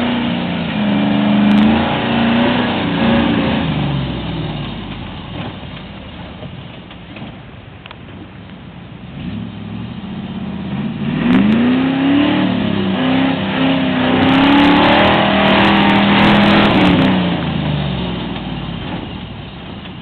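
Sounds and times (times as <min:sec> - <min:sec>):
engine revving under load: 0:00.0 - 0:05.8, 0:09.0 - 0:19.2.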